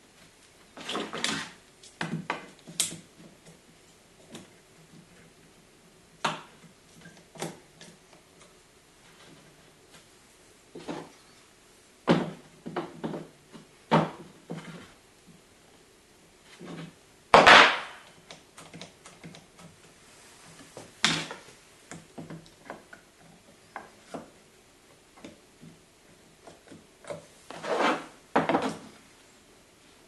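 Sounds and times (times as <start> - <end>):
sharp wooden knock: 17.4 - 18.0.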